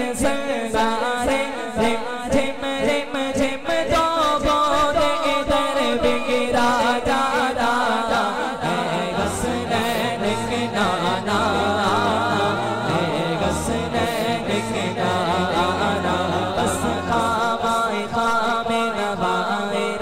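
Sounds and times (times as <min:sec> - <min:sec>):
man singing devotional song: 0:00.0 - 0:20.0.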